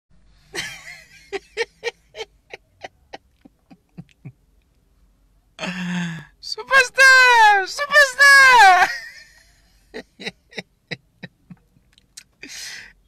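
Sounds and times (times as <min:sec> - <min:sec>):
man laughing: 0:00.6 - 0:04.4, 0:07.8 - 0:11.8
man speaking: 0:06.4 - 0:09.0.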